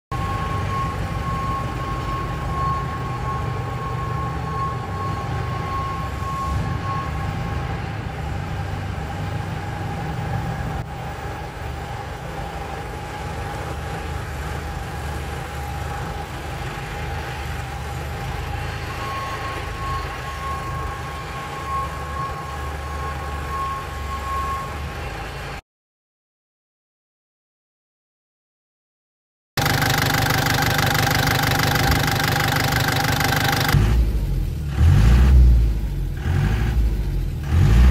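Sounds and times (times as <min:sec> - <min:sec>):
tractor diesel engine running: 0:00.1 - 0:25.6, 0:29.6 - 0:37.9
steady whine: 0:29.6 - 0:34.7.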